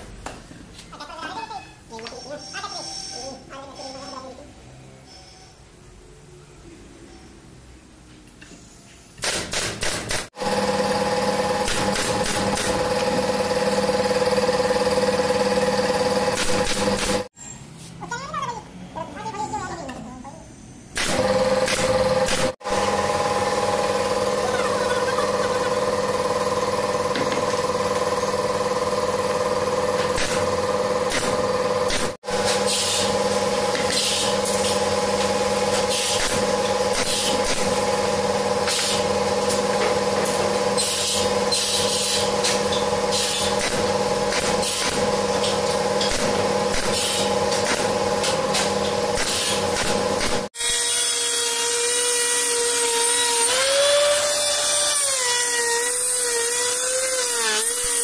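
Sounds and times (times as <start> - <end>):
machine humming: 21.0 - 32.0
electric router cutting wood: 50.6 - 58.0.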